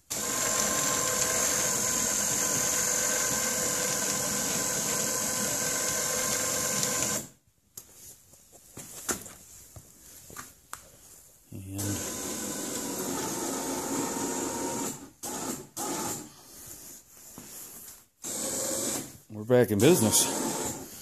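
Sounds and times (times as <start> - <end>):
electric winch whining: 0.1 - 7.3.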